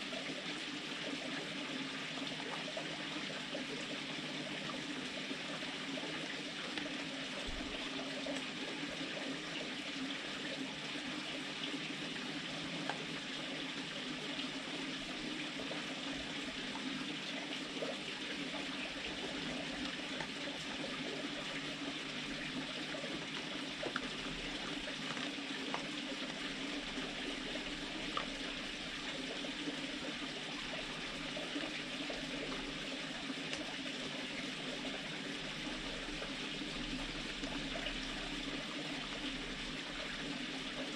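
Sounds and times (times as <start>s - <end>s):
fox crunching dry food: 24.9s - 26.4s.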